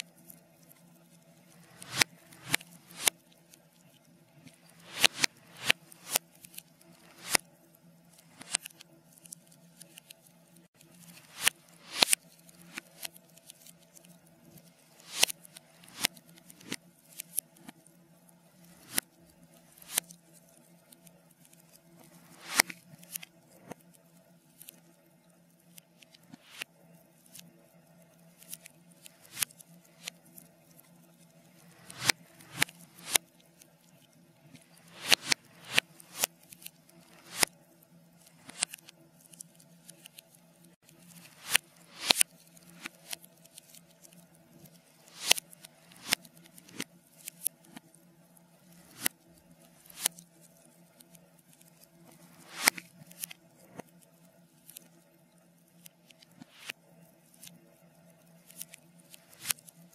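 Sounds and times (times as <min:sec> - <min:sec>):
reversed fire crackling and popping: 0:00.3 - 0:10.0, 0:10.9 - 0:25.0, 0:26.1 - 0:33.7, 0:34.4 - 0:40.1, 0:41.1 - 0:47.9.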